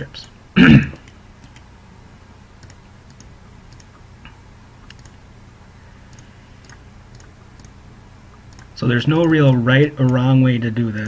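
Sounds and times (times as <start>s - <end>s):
faint low hum: 0.0s - 11.0s
computer mouse clicking: 1.0s - 1.7s, 2.6s - 4.0s, 4.8s - 5.2s, 6.1s - 7.8s, 8.4s - 10.2s.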